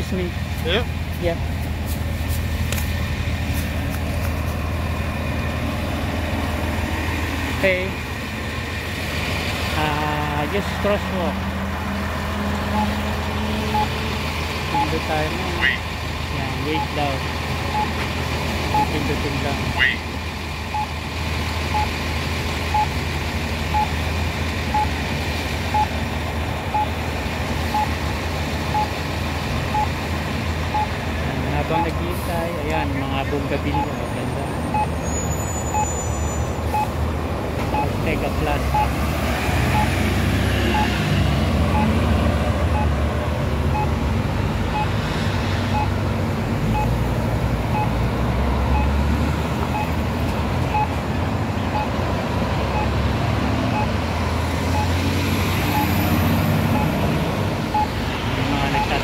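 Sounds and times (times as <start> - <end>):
road traffic rumble: 0.0 - 59.0
crosswalk signal beeps: 12.7 - 13.1, 13.7 - 14.0, 14.7 - 15.8, 16.4 - 18.1, 18.7 - 20.0, 20.7 - 21.0, 21.7 - 22.0, 22.7 - 23.0, 23.7 - 24.0, 24.7 - 25.0, 25.7 - 26.0, 26.7 - 27.0, 27.7 - 28.0, 28.7 - 29.0, 29.7 - 30.0, 30.7 - 32.0, 32.7 - 37.0, 37.7 - 39.0, 39.7 - 40.0, 40.7 - 41.0, 41.7 - 42.0, 42.7 - 43.0, 43.7 - 44.0, 44.7 - 45.0, 45.7 - 46.0, 46.7 - 47.0, 47.7 - 48.0, 48.7 - 49.0, 49.6 - 50.0, 50.7 - 51.0, 51.6 - 52.0, 52.7 - 53.0, 53.7 - 54.1, 54.7 - 55.0, 55.7 - 57.0, 57.7 - 59.0
vehicle passing: 38.0 - 59.0.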